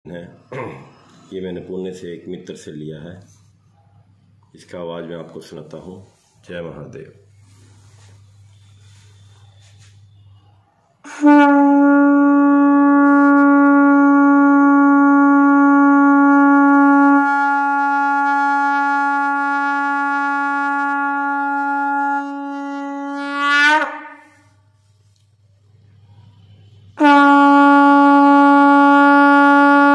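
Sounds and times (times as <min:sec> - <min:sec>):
conch shell blown long note: 0:08.4 - 0:24.7, 0:25.9 - 0:29.9.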